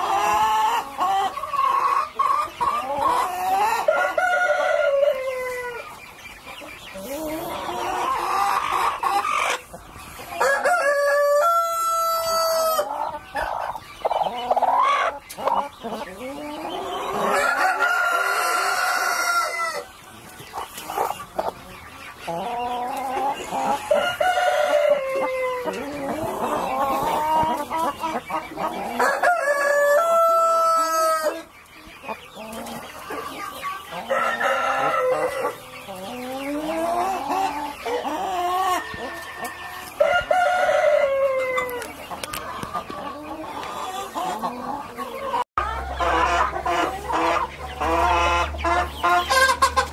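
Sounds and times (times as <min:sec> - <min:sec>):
hens clucking and calling: 0:00.0 - 0:49.9
chicken long crows: 0:10.4 - 0:12.9, 0:17.0 - 0:19.9, 0:28.8 - 0:31.5.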